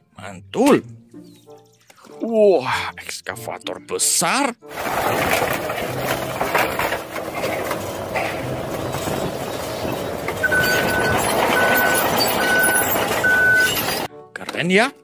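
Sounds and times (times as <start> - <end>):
excavator engine running: 4.7 - 14.1
metal clanks from scrap: 4.7 - 14.1
backup alarm beeping: 10.4 - 14.1.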